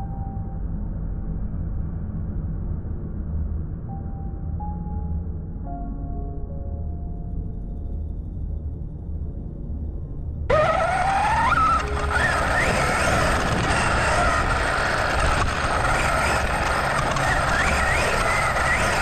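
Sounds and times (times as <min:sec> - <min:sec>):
low rumble: 0:00.0 - 0:10.6
electric motor whine: 0:10.5 - 0:19.0
tyres on loose dirt and gravel: 0:10.5 - 0:19.0.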